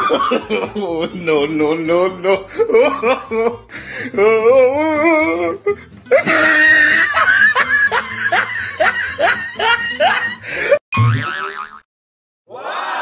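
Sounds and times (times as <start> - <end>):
laughter: 0.0 - 1.9, 2.5 - 3.6, 6.1 - 10.5
music: 0.0 - 10.8.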